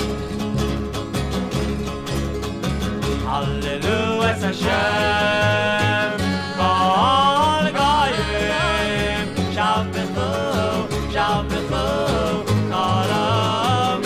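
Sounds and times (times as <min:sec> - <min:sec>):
acoustic guitar strumming: 0:00.0 - 0:14.0
pulsing bass line: 0:00.0 - 0:14.0
person singing: 0:03.2 - 0:14.0.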